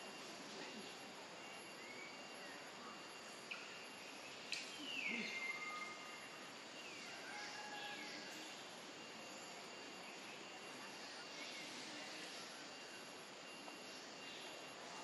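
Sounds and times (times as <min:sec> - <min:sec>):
sharp click: 0:04.5 - 0:04.7.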